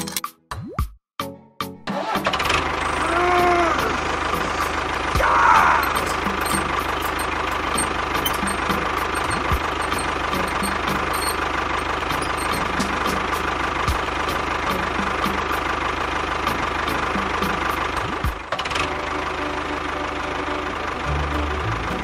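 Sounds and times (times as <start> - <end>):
small motor whining: 5.6 - 13.2.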